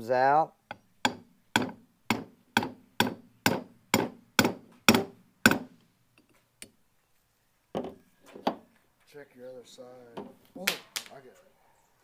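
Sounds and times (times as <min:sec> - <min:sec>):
hammer knocking on metal tool: 0:00.7 - 0:05.7.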